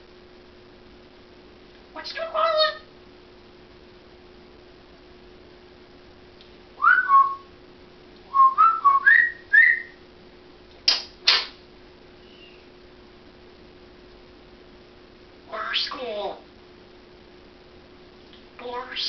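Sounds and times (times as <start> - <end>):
faint steady hum: 0.0 - 19.0
parrot whistling: 6.8 - 7.5, 8.3 - 10.0, 12.2 - 12.6
parrot chirps: 9.1 - 10.0, 12.2 - 12.6.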